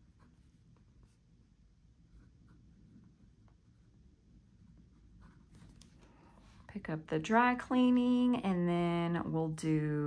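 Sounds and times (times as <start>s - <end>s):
pen scratching on paper: 0.0s - 1.2s, 2.0s - 5.8s.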